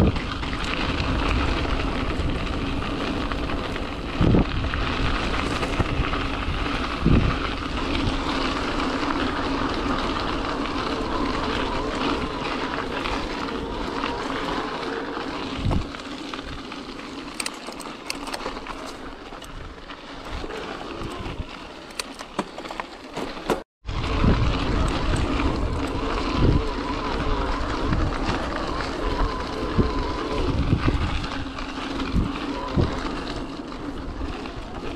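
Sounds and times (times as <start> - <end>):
wind on microphone: 0.0 - 16.7, 17.3 - 22.1, 23.8 - 34.9
bike tyre rumble: 0.0 - 34.9
rapid rattling clicks: 17.2 - 19.6, 21.8 - 23.6.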